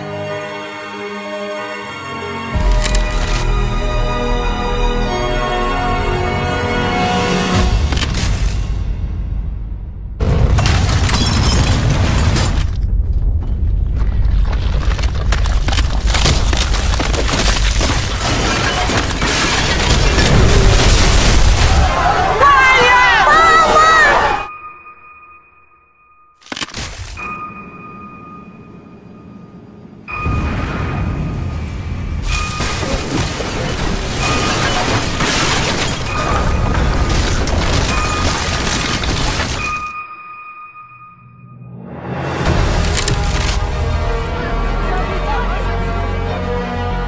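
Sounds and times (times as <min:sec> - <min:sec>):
deep earthquake rumble: 0:11.6 - 0:18.3
stone masonry crashing: 0:13.9 - 0:22.1, 0:32.4 - 0:39.9.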